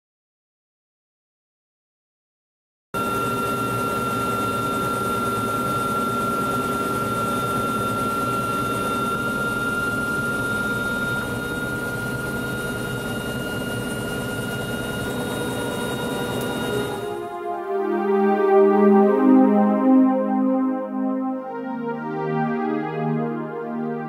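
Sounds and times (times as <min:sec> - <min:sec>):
helicopter rotor and engine drone: 0:03.0 - 0:17.7
high whine: 0:06.9 - 0:21.8.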